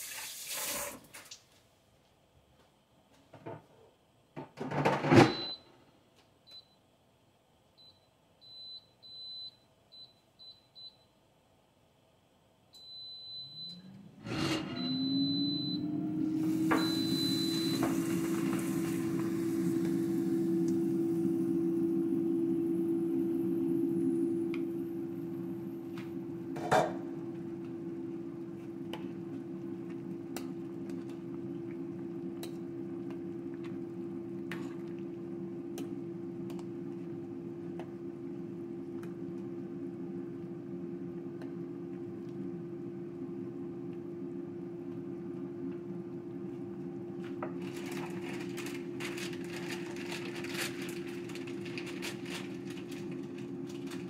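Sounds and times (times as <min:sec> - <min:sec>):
fan motor humming: 0:13.2 - 0:41.0, 0:47.2 - 0:54.0.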